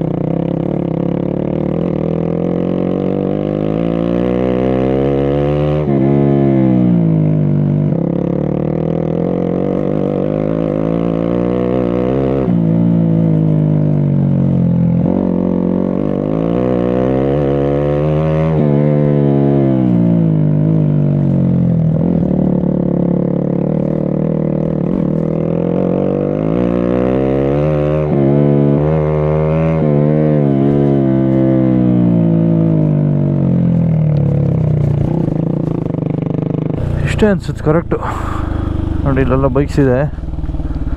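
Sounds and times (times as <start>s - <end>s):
vehicle engine revving: 24.7s - 40.9s.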